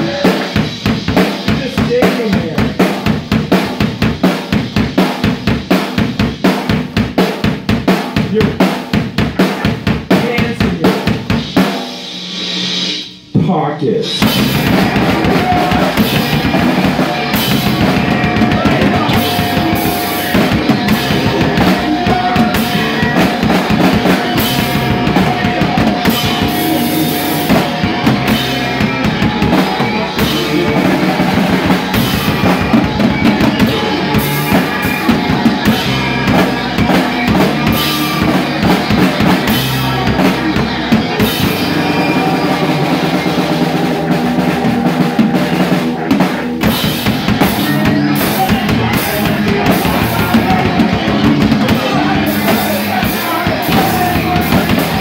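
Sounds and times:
bass drum and snare hits: 0.0s - 12.2s, 14.2s - 41.9s
live rock band playing: 0.0s - 55.0s.

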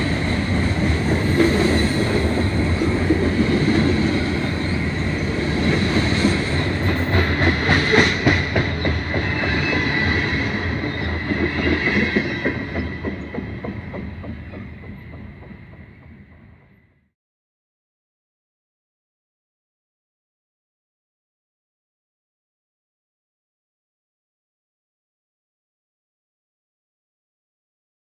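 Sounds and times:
train wheels rumbling over rails: 0.0s - 17.0s.

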